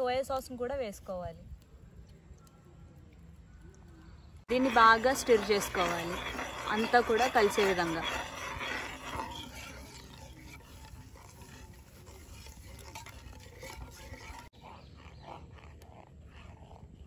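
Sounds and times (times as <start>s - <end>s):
spoon swishing sauce in pan: 4.5s - 14.5s.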